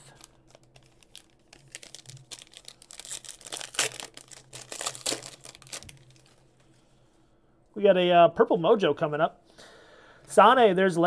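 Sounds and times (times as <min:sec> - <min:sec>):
foil wrapper tearing and crinkling: 0:00.0 - 0:06.4.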